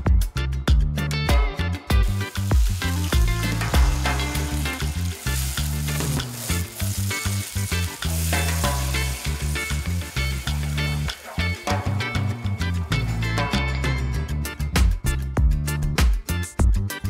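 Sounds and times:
background music with bass line: 0:00.0 - 0:17.0
paste sizzling and bubbling in pan: 0:02.1 - 0:12.8
water pouring: 0:02.3 - 0:12.0.

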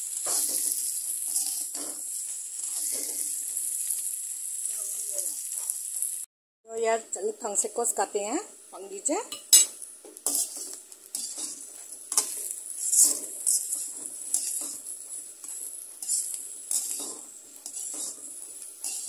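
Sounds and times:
steel spatula scraping a pan: 0:00.0 - 0:03.4, 0:09.6 - 0:19.0
oil sizzling: 0:00.0 - 0:19.0.

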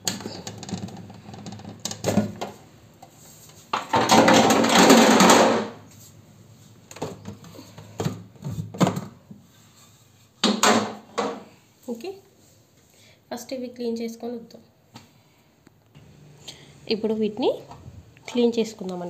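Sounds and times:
loud plastic clatter: 0:03.7 - 0:05.8.

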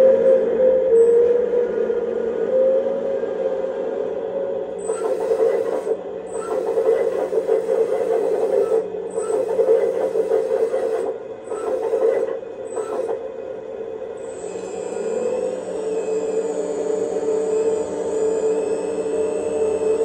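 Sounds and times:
simulated diesel engine hum: 0:04.6 - 0:20.0.

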